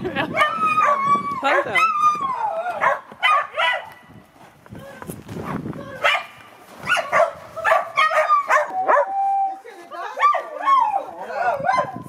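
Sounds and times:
dog barking sharply: 0:02.8 - 0:03.9, 0:06.9 - 0:09.1.

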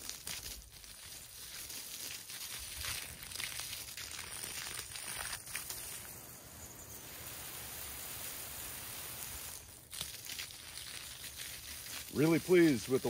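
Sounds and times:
water rushing with a hiss: 0:04.8 - 0:09.9, 0:10.5 - 0:13.0.

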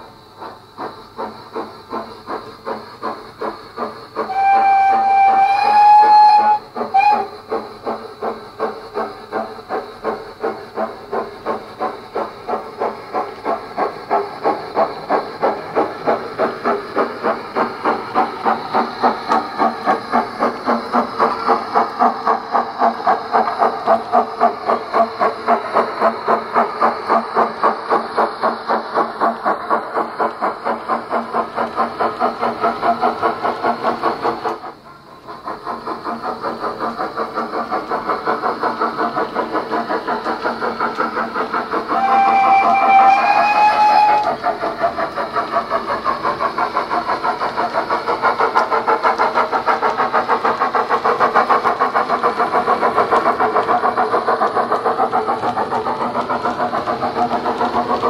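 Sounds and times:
steam exhaust beats: 0:00.0 - 0:58.0
steam whistle: 0:04.2 - 0:07.4, 0:41.9 - 0:44.4.

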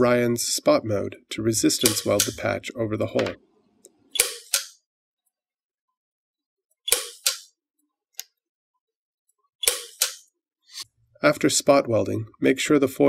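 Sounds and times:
sharp weld snaps: 0:04.2 - 0:04.8, 0:06.9 - 0:07.5, 0:09.6 - 0:10.3.

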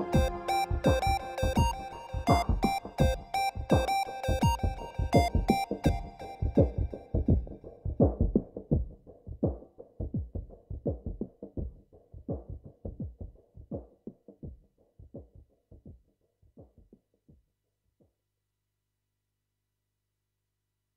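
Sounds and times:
electronic chillout music: 0:00.0 - 0:07.5.

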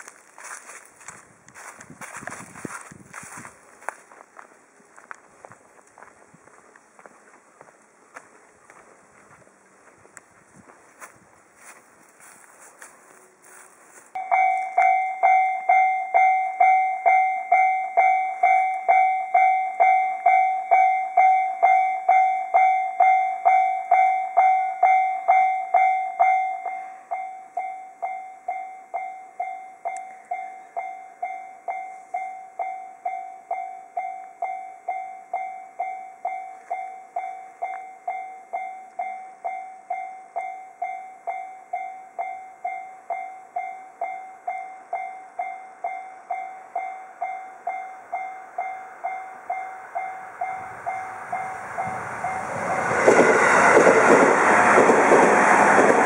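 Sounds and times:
level-crossing warning bell ringing: 0:13.4 - 0:56.0.

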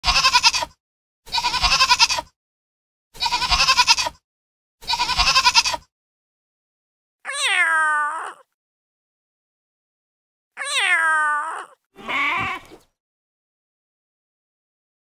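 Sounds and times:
goat bleating: 0:00.0 - 0:00.7, 0:01.3 - 0:02.3, 0:03.2 - 0:04.2, 0:04.8 - 0:05.8, 0:12.0 - 0:12.8
cat meowing: 0:07.3 - 0:08.5, 0:10.6 - 0:12.8.

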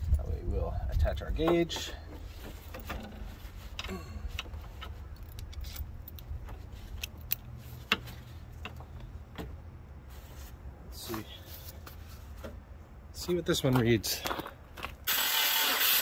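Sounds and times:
metal gauge clicks and rattles: 0:03.8 - 0:09.5.

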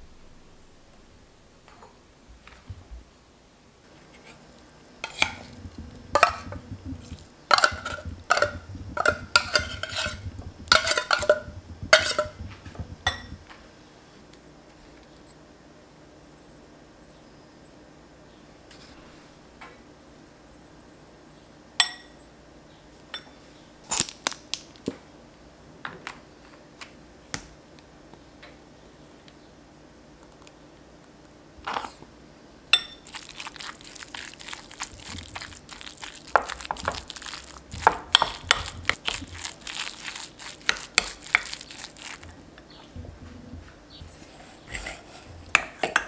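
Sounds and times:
spoon mashing and scraping in bowl: 0:04.0 - 0:13.5, 0:32.8 - 0:46.0
spoon clinking glass bowl: 0:05.0 - 0:13.4, 0:32.8 - 0:33.8, 0:36.3 - 0:41.6.

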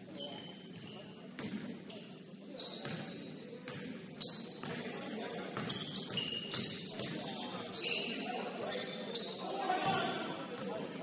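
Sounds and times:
sneakers squeaking on floor: 0:00.0 - 0:10.7
murmur of voices: 0:00.0 - 0:11.0.

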